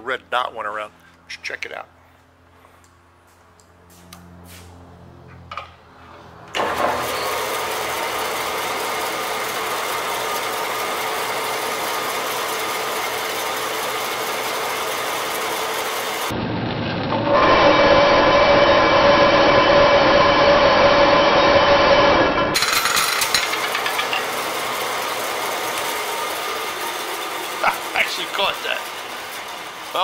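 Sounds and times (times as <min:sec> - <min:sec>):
bandsaw running: 0:06.6 - 0:16.3, 0:17.1 - 0:30.0.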